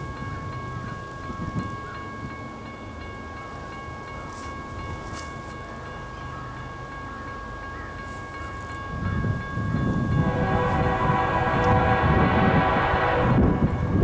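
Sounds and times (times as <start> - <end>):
diesel locomotive rumbling: 0.0 - 14.0
locomotive horn chord: 10.1 - 14.0.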